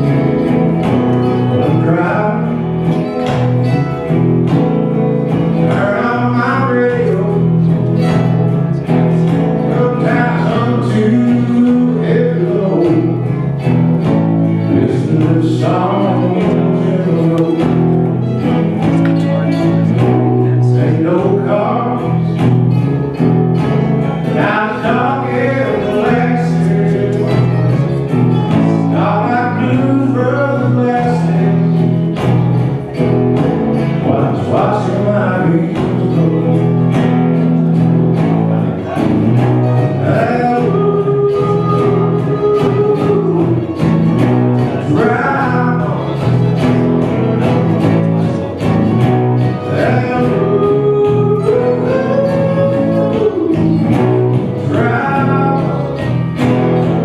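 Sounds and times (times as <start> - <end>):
mandolin playing: 0.0 - 34.3
acoustic guitar: 0.0 - 57.0
man singing: 0.0 - 57.0.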